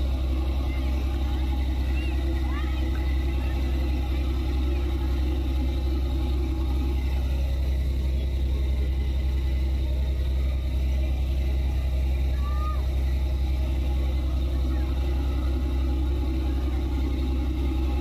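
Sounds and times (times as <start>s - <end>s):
boat engine idling: 0.0s - 18.0s.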